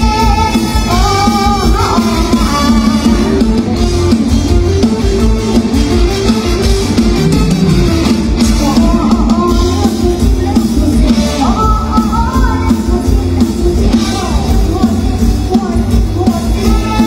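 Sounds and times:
band music over loudspeakers: 0.0 - 17.0
drum and bass beat: 0.0 - 17.0
girl singing into microphone: 8.9 - 17.0.

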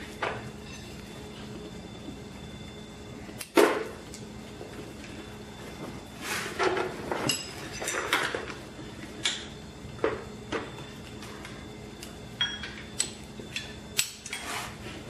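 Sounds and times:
metal tools clinking on engine block: 7.2 - 8.4.

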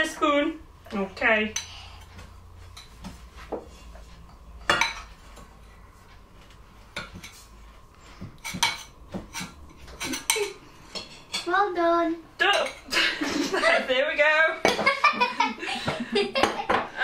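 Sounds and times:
metal spoon scraping bowl and pan: 8.4 - 11.5.

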